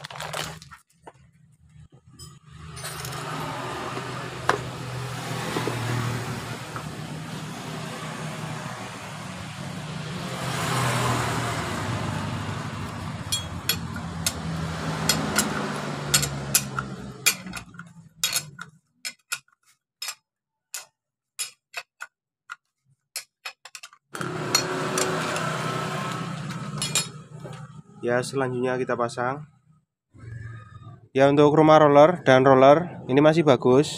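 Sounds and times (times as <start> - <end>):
road traffic rumble: 1.7 - 18.7, 24.2 - 28.9
metal parts clicking: 15.1 - 22.1, 23.2 - 25.1.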